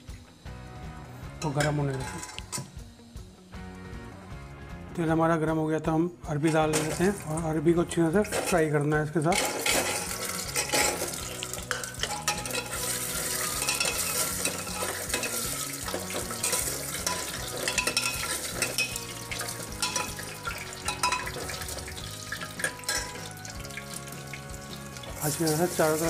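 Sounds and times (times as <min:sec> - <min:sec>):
steel ladle clinking and scraping: 0:01.4 - 0:02.7, 0:06.5 - 0:07.2, 0:08.2 - 0:23.3
vegetables sizzling in hot oil: 0:08.2 - 0:26.0.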